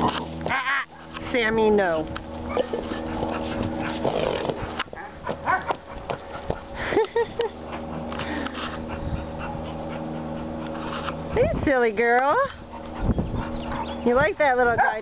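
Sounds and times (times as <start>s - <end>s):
dogs whining and yipping: 2.4s - 6.7s, 7.7s - 11.5s, 12.6s - 15.0s.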